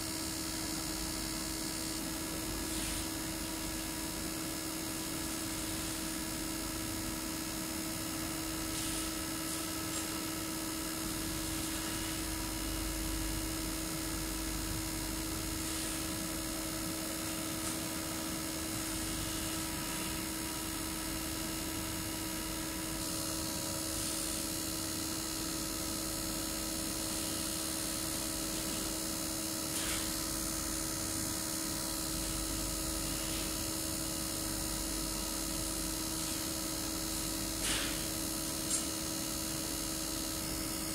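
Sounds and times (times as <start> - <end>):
machine hum with steady tone: 0.0 - 40.9
hiss: 2.6 - 3.2, 8.6 - 10.0, 29.7 - 30.1, 36.1 - 36.6, 37.6 - 38.9.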